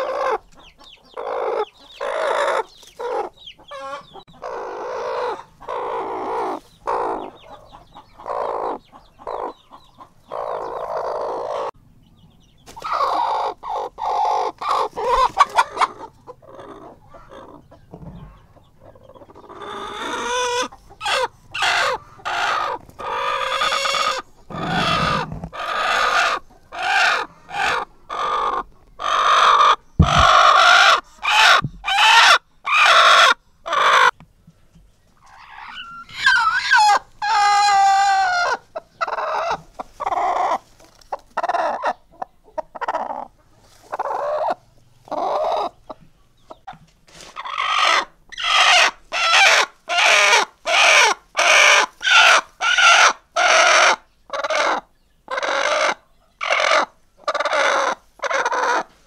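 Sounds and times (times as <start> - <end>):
hens clucking: 0.0 - 11.8, 12.6 - 34.2, 35.1 - 59.0
hen squawking: 19.6 - 34.1.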